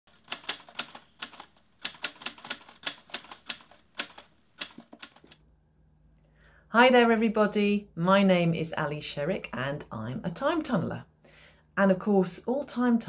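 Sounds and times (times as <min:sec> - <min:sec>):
typewriter keys clacking: 0:00.1 - 0:05.4.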